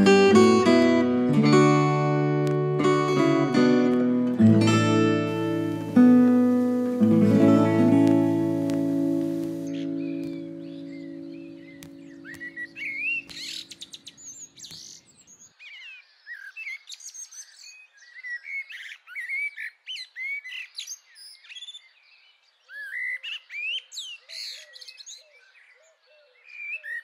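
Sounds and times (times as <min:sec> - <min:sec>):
music: 0:00.0 - 0:13.7
low repeated bird chirps: 0:05.2 - 0:16.5
birds chirping and singing: 0:05.3 - 0:27.0.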